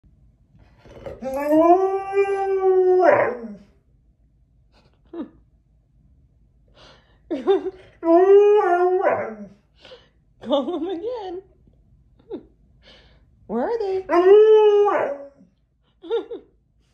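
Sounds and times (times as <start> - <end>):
husky howling: 1.1 - 3.7, 8.0 - 9.6, 14.1 - 15.5.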